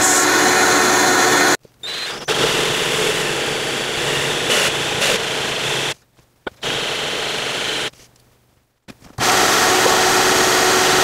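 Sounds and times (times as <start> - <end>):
drill cutting through tile: 0.0 - 6.0, 6.6 - 7.9, 9.2 - 11.0.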